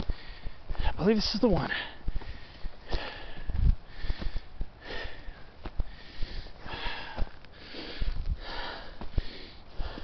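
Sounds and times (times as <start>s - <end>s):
heavy breathing: 0.0s - 1.0s, 1.7s - 10.0s
footsteps on dry dirt: 0.0s - 10.0s.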